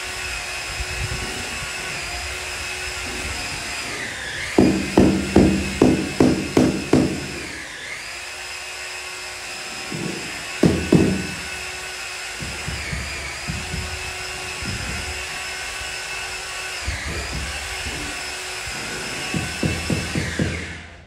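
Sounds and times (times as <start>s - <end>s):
power tool motor whining: 0.0s - 21.0s
low knocks: 12.4s - 15.1s.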